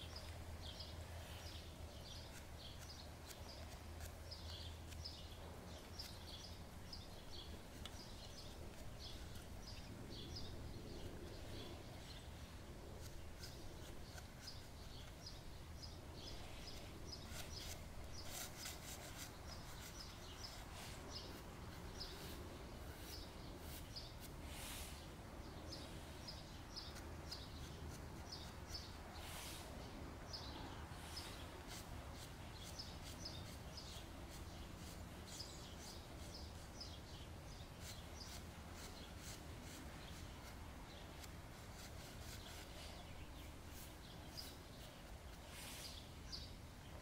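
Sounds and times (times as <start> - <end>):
faint outdoor background: 0.0 - 47.0
high chirp-like ticks: 1.4 - 9.9, 26.8 - 28.9
pastel scratching on paper: 1.4 - 10.5, 11.2 - 24.4, 26.8 - 29.7, 31.1 - 45.9.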